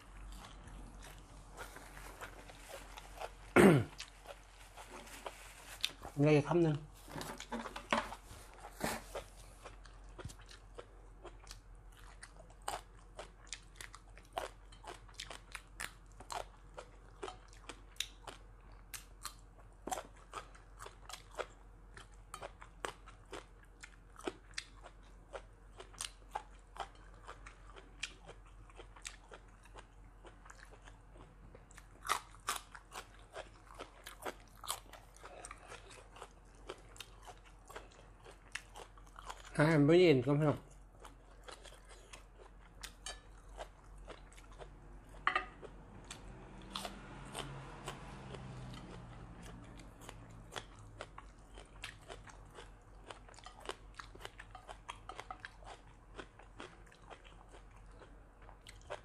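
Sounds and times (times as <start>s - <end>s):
person chewing food: 0.0s - 6.1s, 7.3s - 39.6s, 40.7s - 59.0s.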